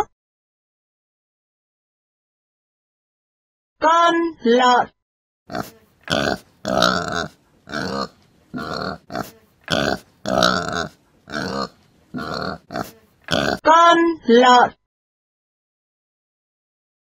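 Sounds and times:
pig grunting: 0:05.5 - 0:13.6.

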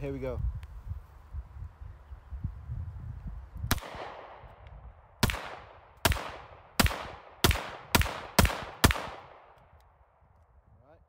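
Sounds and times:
wind rumbling on microphone: 0:00.0 - 0:11.0
pistol shots: 0:03.7 - 0:04.6, 0:05.2 - 0:09.7.

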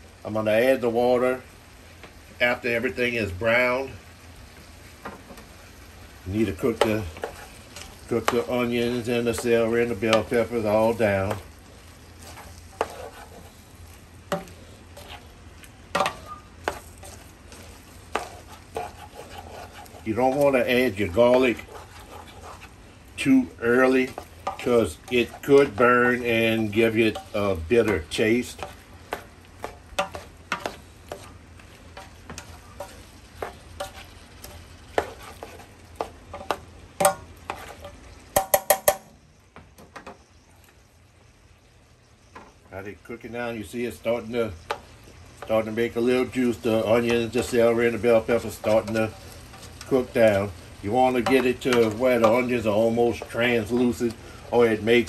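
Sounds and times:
vegetables frying sizzle: 0:00.0 - 0:55.0
utensil stirring and scraping: 0:06.4 - 0:38.7, 0:44.6 - 0:55.0
utensil knocking against pan: 0:38.4 - 0:39.1.

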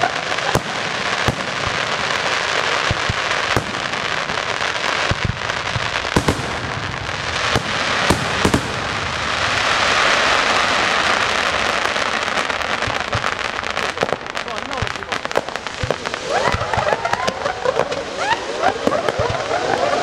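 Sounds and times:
fireworks shells bursting: 0:00.0 - 0:11.2
firecrackers crackling: 0:00.0 - 0:20.0.

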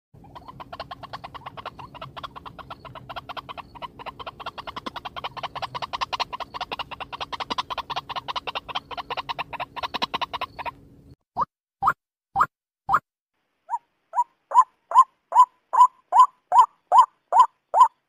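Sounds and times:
bird calling harsh repeated notes: 0:00.2 - 0:10.8, 0:13.7 - 0:18.0
faint steady hum: 0:00.2 - 0:11.2.

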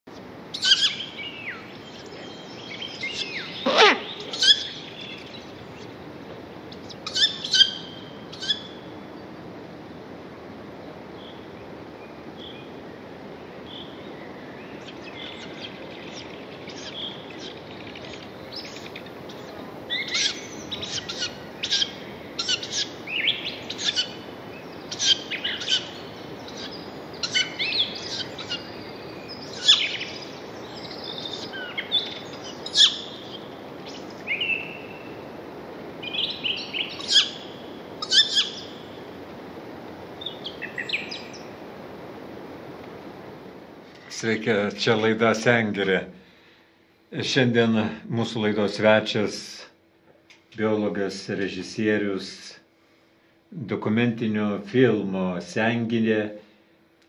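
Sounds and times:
wild birds chirping: 0:00.1 - 0:49.6
background hiss: 0:00.1 - 0:57.0
loud sound sliding down in pitch: 0:03.6 - 0:04.3.

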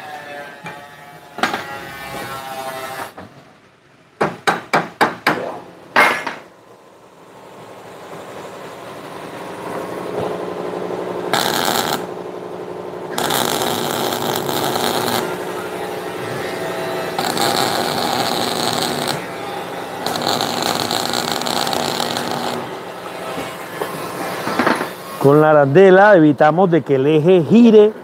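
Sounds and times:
hammer striking steel: 0:04.2 - 0:06.5
welding arc crackling: 0:11.3 - 0:12.2, 0:13.1 - 0:22.9.

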